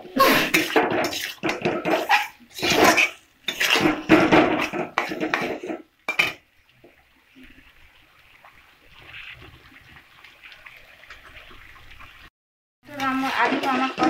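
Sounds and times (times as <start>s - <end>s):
metal spatula scraping a pan: 0.0s - 6.4s.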